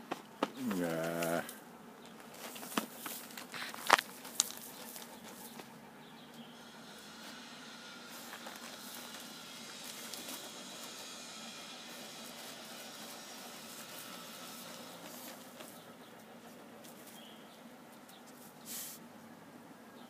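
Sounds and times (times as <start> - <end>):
dog digging in gravelly soil: 2.2 - 6.2, 8.0 - 17.4.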